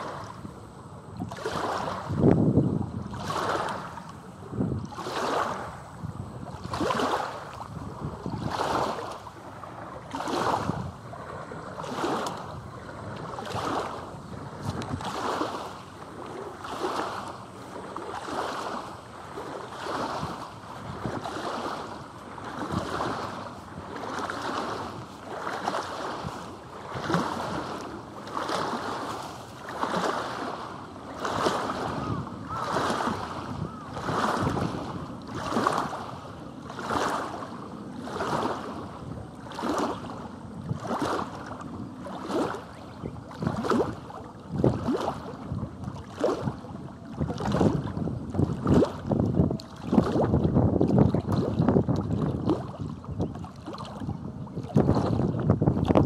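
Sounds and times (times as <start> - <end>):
waves lapping against stony bank: 0.0 - 56.0.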